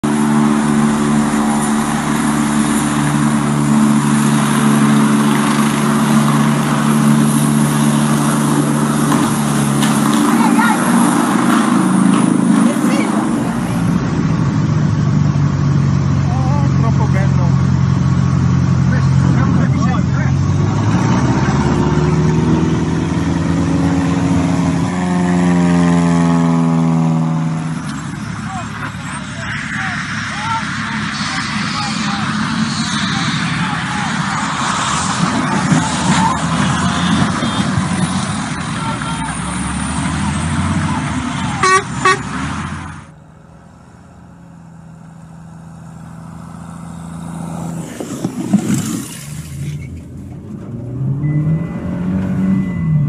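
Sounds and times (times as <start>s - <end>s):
light aircraft engine droning: 0.0s - 20.5s, 22.3s - 39.3s
helicopter hovering: 0.0s - 49.3s
plane passing by: 0.0s - 53.0s.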